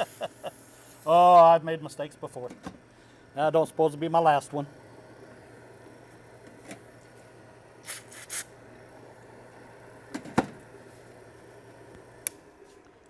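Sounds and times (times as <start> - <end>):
faint steady hum: 0.0 - 13.0
metal scraping hisses: 7.8 - 8.5.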